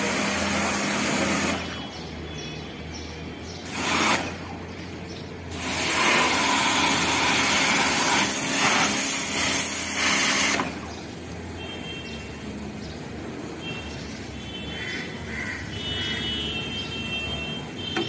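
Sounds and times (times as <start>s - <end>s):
pressure washer motor humming: 0.0s - 1.8s, 3.6s - 4.6s, 5.4s - 11.4s
water jet hissing: 0.0s - 1.8s, 3.6s - 4.6s, 5.5s - 10.9s.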